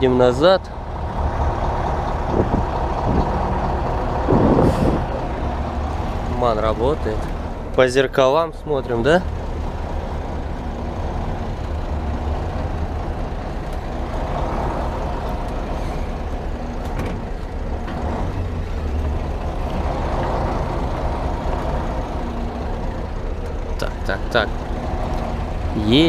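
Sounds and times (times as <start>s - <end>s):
truck diesel engine running: 0.0s - 26.0s.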